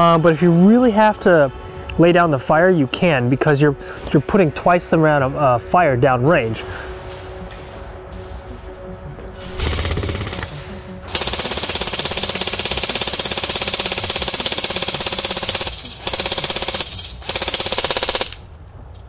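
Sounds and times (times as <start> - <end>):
airsoft rifle firing full auto: 11.1 - 18.4.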